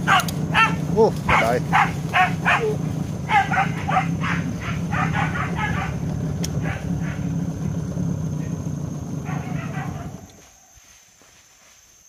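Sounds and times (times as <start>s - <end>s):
dogs barking in high yelps: 0.0s - 7.4s, 9.2s - 10.4s
low hum: 0.0s - 10.4s.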